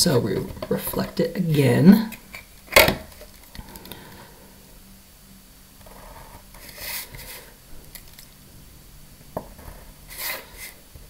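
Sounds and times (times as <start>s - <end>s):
low steady hum: 0.0s - 11.0s
ruler scraping across paper: 5.8s - 7.5s, 9.6s - 10.8s
pen strokes on paper: 5.9s - 7.5s, 9.6s - 10.8s.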